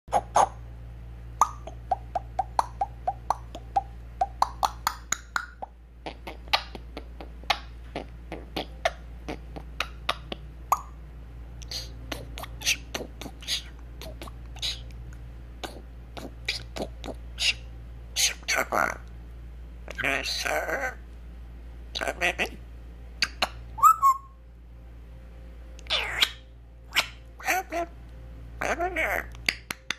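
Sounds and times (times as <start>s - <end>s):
parrot beatboxing clicks and pops: 1.4s - 10.9s, 29.3s - 29.9s.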